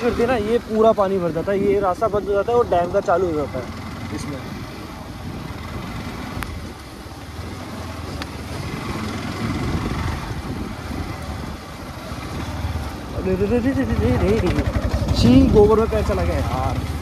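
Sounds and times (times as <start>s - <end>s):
motorcycle engine running: 0.0s - 17.0s
wind noise on microphone: 4.4s - 6.9s, 8.2s - 12.6s.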